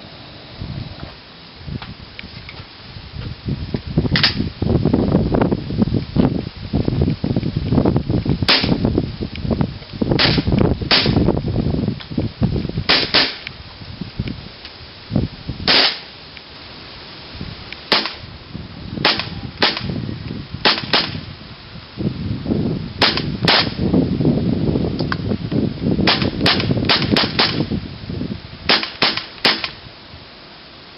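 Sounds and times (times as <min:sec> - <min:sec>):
airsoft gun shots: 0:04.1 - 0:04.4, 0:08.5 - 0:08.8, 0:10.2 - 0:11.2, 0:12.9 - 0:13.4, 0:15.6 - 0:16.1, 0:17.9 - 0:18.2, 0:19.0 - 0:19.9, 0:20.6 - 0:21.3, 0:23.0 - 0:23.8, 0:26.0 - 0:27.7, 0:28.7 - 0:29.8.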